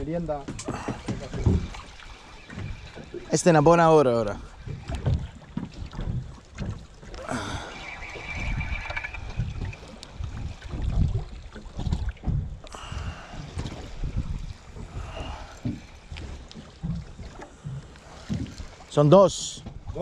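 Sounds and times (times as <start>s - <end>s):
wind buffeting microphone: 0.0s - 18.9s
high whine: 7.2s - 10.4s.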